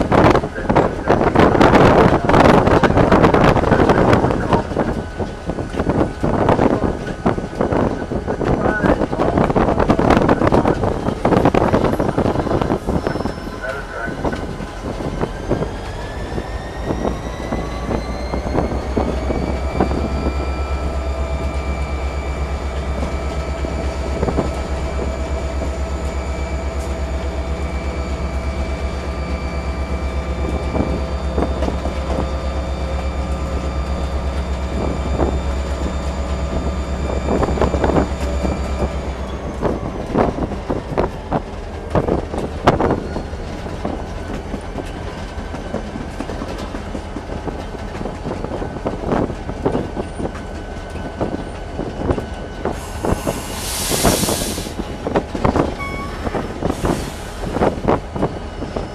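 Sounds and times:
diesel engine droning: 0.0 - 58.9
rising whine: 15.0 - 44.9.

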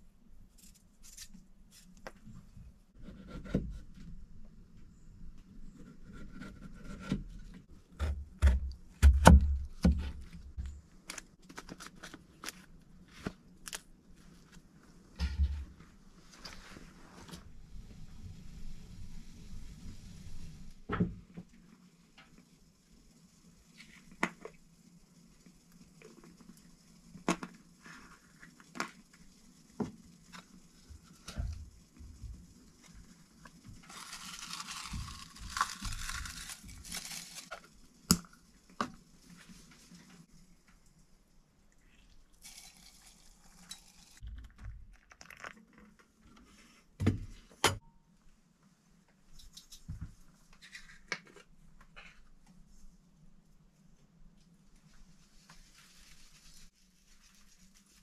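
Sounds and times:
dried flowers rustling into tin: 33.8 - 37.7.

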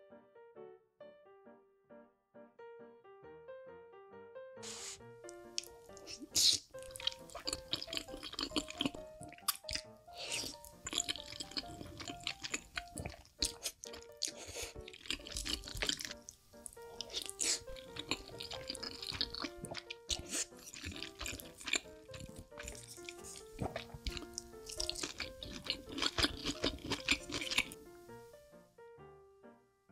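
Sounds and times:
soft plucked instrumental music: 4.6 - 29.2
wet eating and slurping: 5.6 - 27.8.

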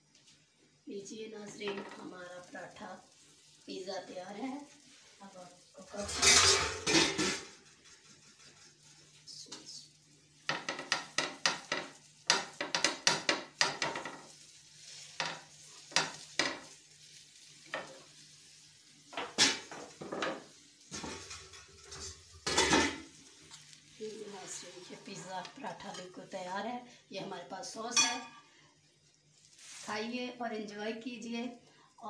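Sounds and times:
spatula scraping a griddle pan: 5.9 - 9.3, 10.5 - 23.7, 24.5 - 26.2
pan clattering on stove grate: 6.0 - 8.0, 10.5 - 14.4, 15.0 - 16.8, 17.6 - 18.1, 19.1 - 23.2.

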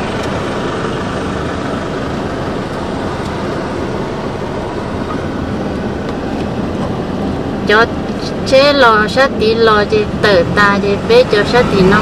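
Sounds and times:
car engine and tyre noise: 0.0 - 12.0.

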